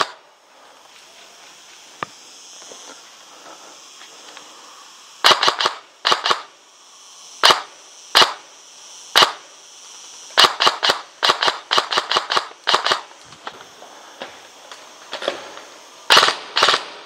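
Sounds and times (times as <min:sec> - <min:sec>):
airsoft guns firing: 0:05.2 - 0:06.5, 0:07.4 - 0:08.4, 0:09.1 - 0:09.4, 0:10.4 - 0:13.1, 0:16.1 - 0:17.0.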